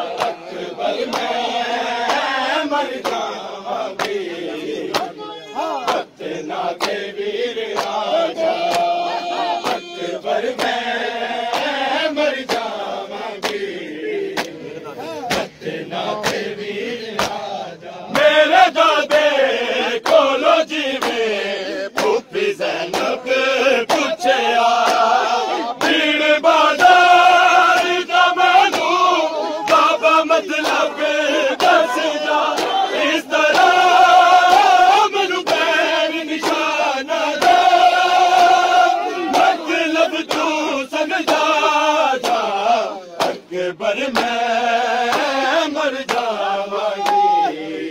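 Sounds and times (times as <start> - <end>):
hands slapping chests: 0.0 - 2.4, 3.0 - 3.4, 4.0 - 7.1, 7.7 - 10.8, 11.4 - 16.5, 17.1 - 18.4, 20.0 - 23.2, 23.8 - 26.1, 27.7 - 30.9, 31.5 - 33.8, 35.4 - 35.7, 36.3 - 36.7, 40.2 - 40.6, 41.2 - 41.6, 42.2 - 42.5, 43.2 - 43.5, 44.1 - 44.4, 45.1 - 45.4, 46.0 - 47.5
crowd of men chanting: 0.0 - 47.9.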